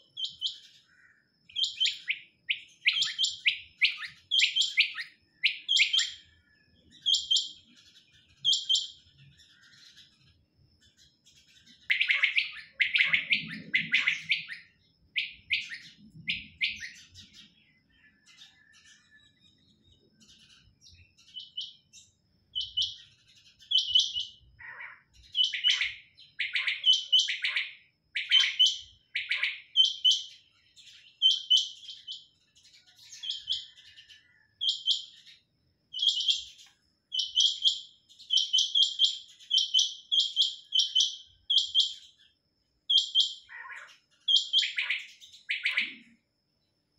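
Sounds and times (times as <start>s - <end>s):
quails calling: 11.8s - 17.5s, 23.7s - 27.6s, 42.9s - 46.1s.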